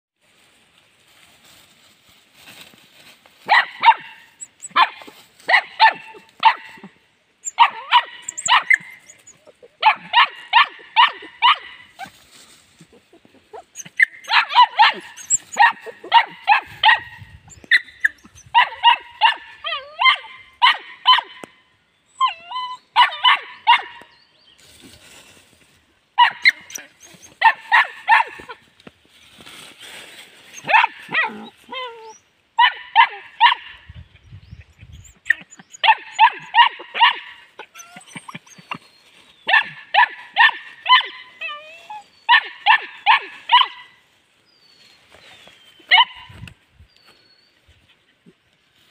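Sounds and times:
puppy yapping: 3.5 - 12.1, 13.5 - 21.4, 26.2 - 28.6, 35.1 - 38.8, 39.5 - 43.9
puppy whining: 7.5 - 9.8, 12.8 - 16.2, 22.2 - 22.9, 30.6 - 32.2, 37.6 - 38.9.

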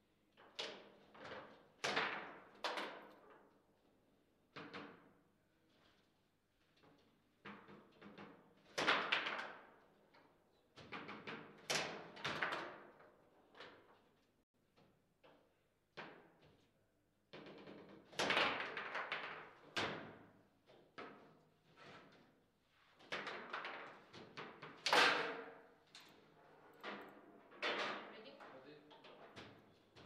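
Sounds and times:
table football knocks and clacks: 4.5 - 5.3, 7.4 - 9.8, 10.8 - 13.1, 17.3 - 21.4.

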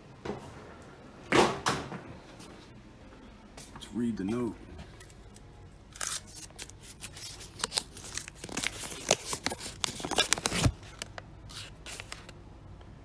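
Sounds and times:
paper crinkling and rustling: 6.1 - 12.4.

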